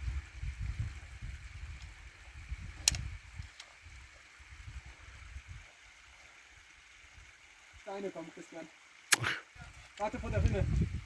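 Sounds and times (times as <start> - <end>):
sharp click: 2.8 - 3.0.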